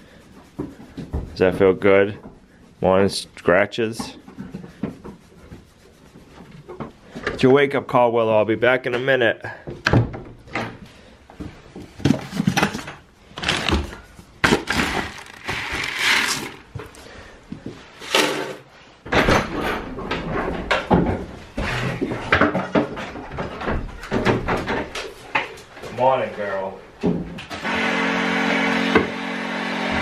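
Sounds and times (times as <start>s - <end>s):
feed scoop and bucket clatter: 12.1s - 16.7s.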